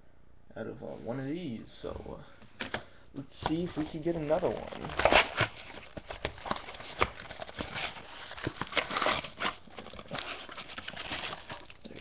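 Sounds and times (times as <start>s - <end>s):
crinkly wrapper rustling: 3.5s - 12.0s.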